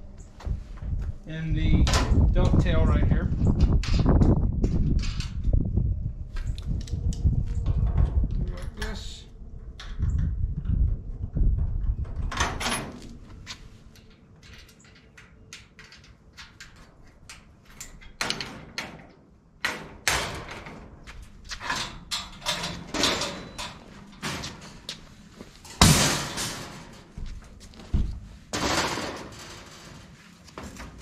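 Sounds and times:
metal ramp clanking and rattling: 0:10.0 - 0:17.1, 0:17.7 - 0:25.0, 0:25.6 - 0:31.0.

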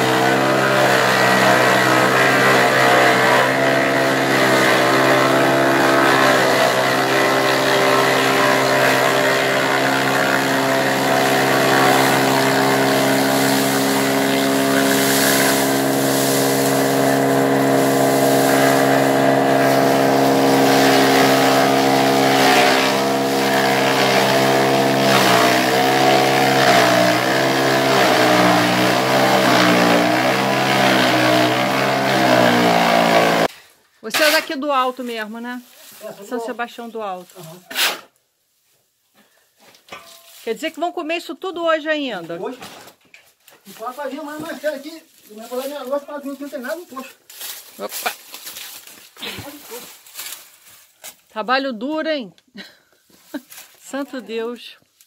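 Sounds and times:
forage chopper running: 0:00.0 - 0:33.5, 0:43.9 - 0:50.5.

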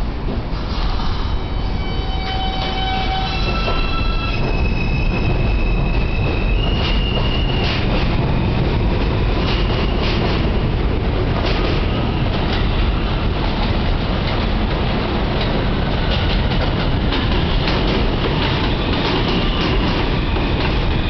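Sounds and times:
subway train high propulsion tones: 0:00.0 - 0:21.0.

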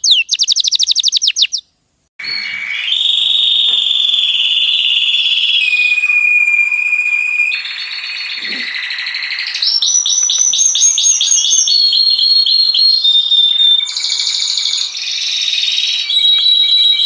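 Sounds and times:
canary singing: 0:00.0 - 0:01.7, 0:07.4 - 0:17.0.

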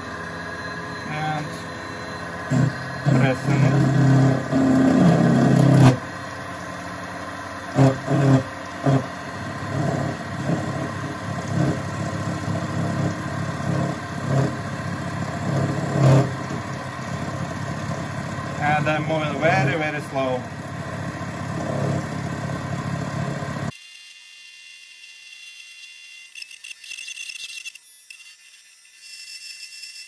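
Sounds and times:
drill press motor whine: 0:00.0 - 0:30.0
metal cutting chatter: 0:01.0 - 0:06.0, 0:07.7 - 0:23.4.

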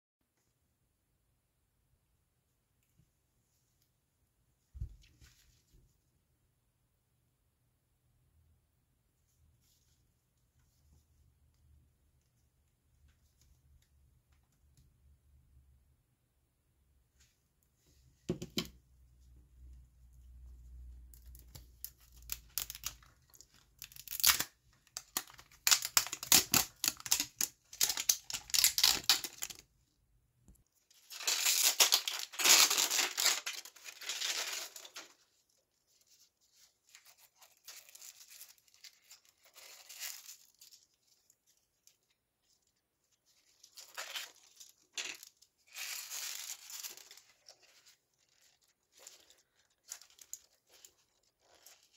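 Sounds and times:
plastic wrapper tearing and crinkling: 0:21.1 - 0:29.6, 0:30.9 - 0:35.4, 0:36.9 - 0:41.9, 0:43.4 - 0:51.9.

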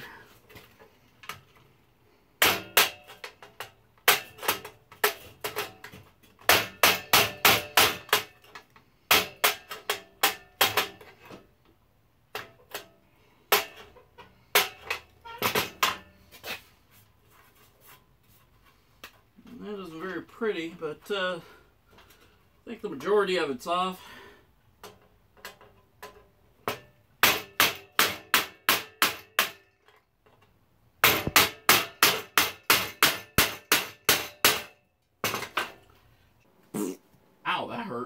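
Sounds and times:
hammer striking chisel: 0:31.0 - 0:34.7.

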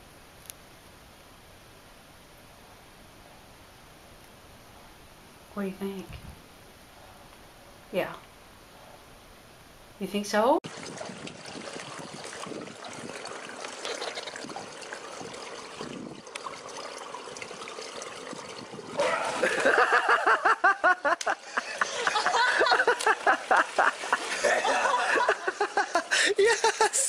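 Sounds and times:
pool water trickling and splashing: 0:10.6 - 0:26.8.

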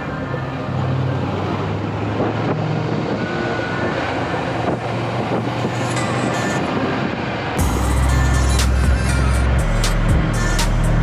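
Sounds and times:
wind and road noise: 0:00.0 - 0:11.0
music: 0:02.2 - 0:11.0
motorcycle engine running: 0:07.6 - 0:11.0.

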